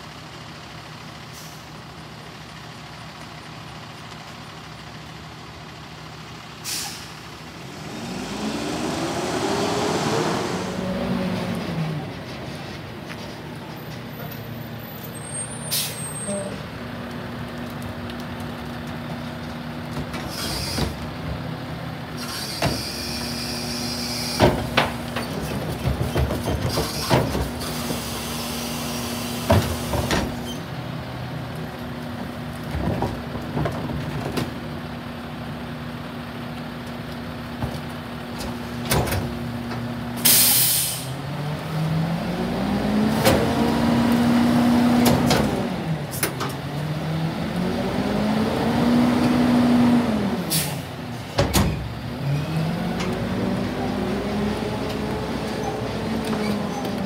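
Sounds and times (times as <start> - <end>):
diesel engine idling and revving: 0.0 - 57.0
bangs and clanks of carts: 24.1 - 28.0
air hiss: 40.2 - 41.1.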